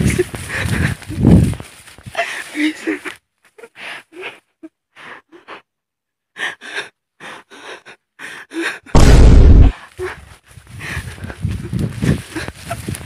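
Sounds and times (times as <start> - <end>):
man gasping breaths: 0.0 - 1.3, 9.7 - 13.0
loud rumbling burst of noise: 9.0 - 9.7.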